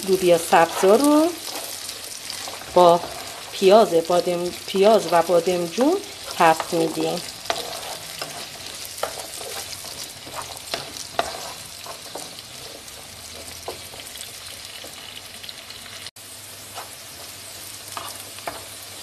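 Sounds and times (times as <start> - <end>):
vegetables sizzling in oil: 0.0 - 19.0
utensil scraping and tapping a pan: 6.3 - 14.0.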